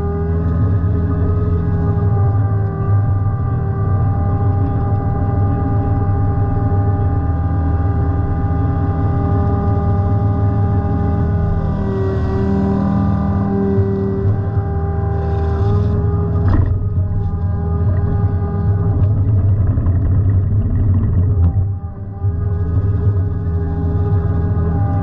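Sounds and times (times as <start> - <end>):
excavator diesel engine: 0.0 - 25.0
hydraulic whine: 0.0 - 25.0.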